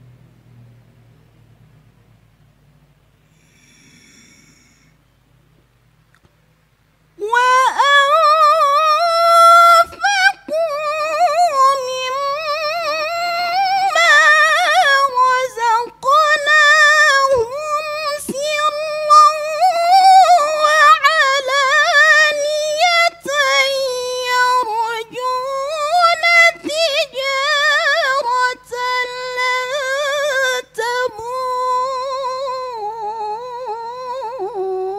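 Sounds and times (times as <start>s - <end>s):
woman reciting melodically: 7.2s - 34.9s.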